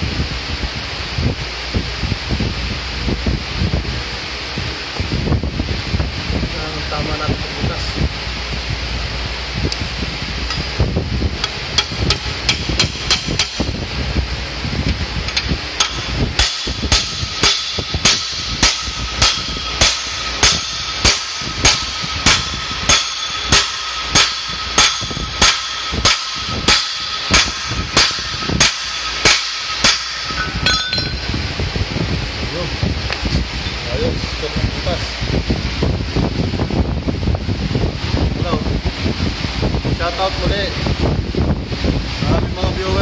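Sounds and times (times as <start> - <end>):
hammer striking metal rod: 11.8 - 13.7, 15.3 - 31.3.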